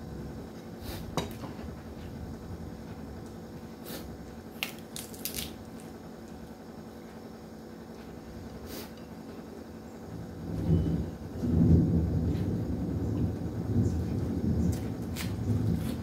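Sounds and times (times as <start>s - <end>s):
cabbage leaf tearing: 3.9s - 5.9s, 14.7s - 16.0s.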